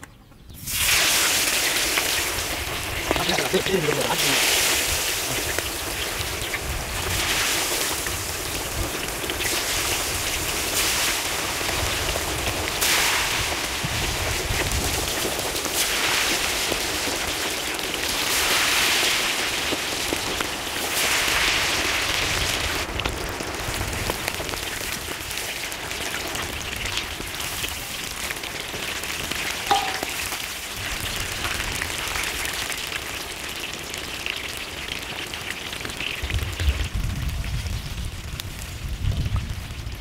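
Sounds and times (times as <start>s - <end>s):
meat sizzling in hot oil: 0.6s - 40.0s
metallic clink: 29.7s - 30.2s.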